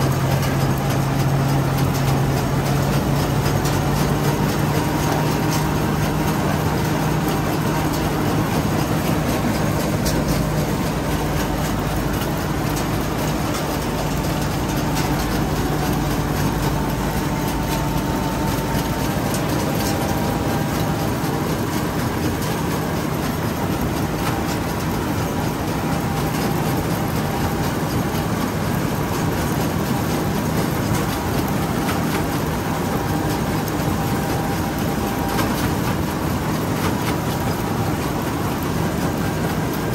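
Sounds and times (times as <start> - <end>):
combine harvester engine drone: 0.0 - 39.9.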